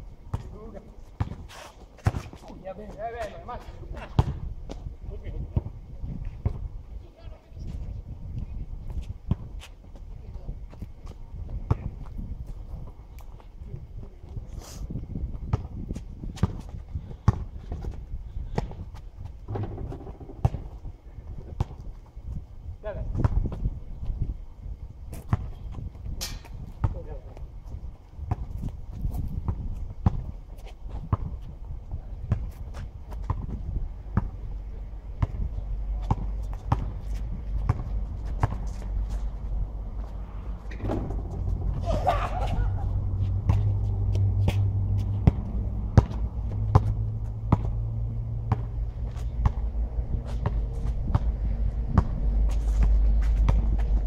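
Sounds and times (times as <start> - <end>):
basketball bouncing on asphalt: 0.3 - 5.8, 6.4 - 6.7, 8.9 - 12.9, 15.2 - 22.4, 23.1 - 23.8, 25.1 - 27.5, 28.1 - 34.5, 35.1 - 54.0
sneaker footsteps: 35.2 - 54.0.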